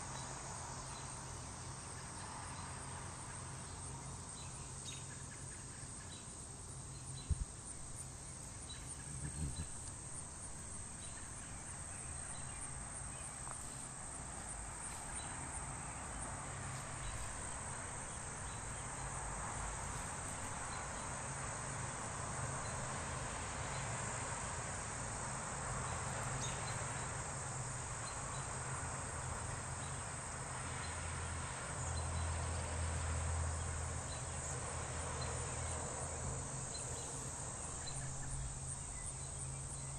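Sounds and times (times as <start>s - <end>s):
high-pitched insect chorus: 0.0s - 39.9s
low rumble on microphone: 8.8s - 13.0s.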